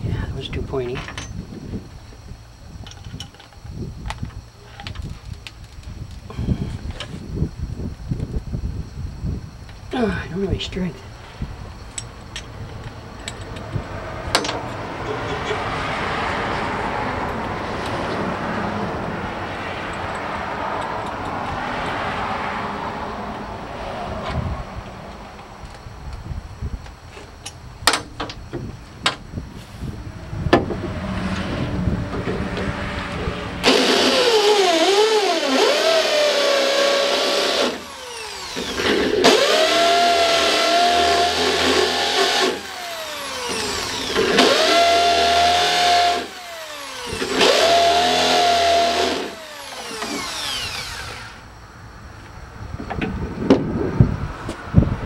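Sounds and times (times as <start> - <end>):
sharp clicks and knocks: 11.9 - 15.7, 27.1 - 29.2
electric drill whining: 33.6 - 51.5.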